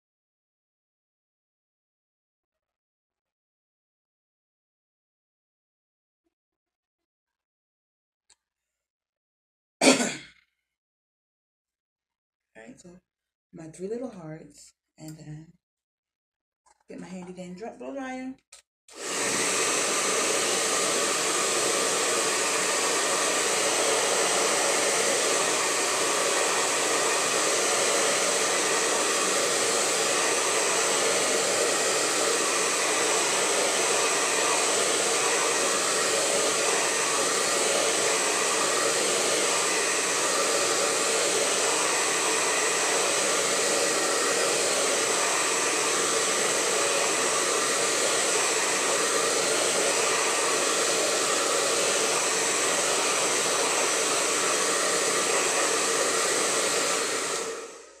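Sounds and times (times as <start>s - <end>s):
blow dryer running: 18.9s - 58.0s.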